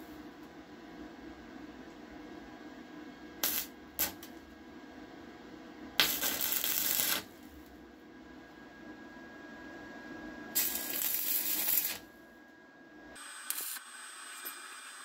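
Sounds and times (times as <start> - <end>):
welding arc striking: 3.4 - 4.3, 6.0 - 7.3, 10.6 - 12.0, 13.2 - 15.0
arc welding crackling and sizzling: 3.4 - 4.5, 6.0 - 7.8, 10.5 - 12.1, 13.2 - 15.0.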